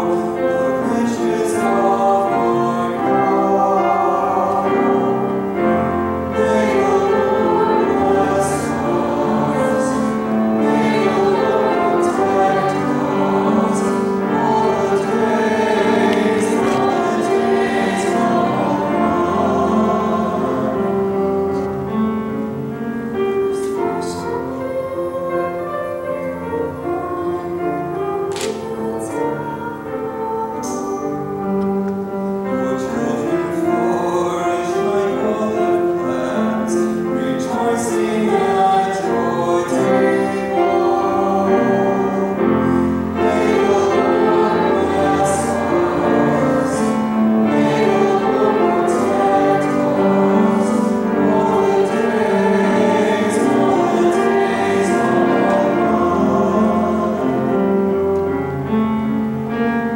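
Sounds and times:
instrumental accompaniment: 0:00.0 - 0:59.9
voices singing psalm: 0:00.0 - 0:59.9.

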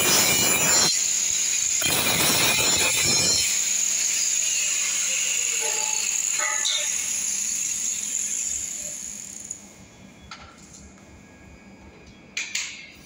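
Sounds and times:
angle grinder whine: 0:00.0 - 0:09.7.

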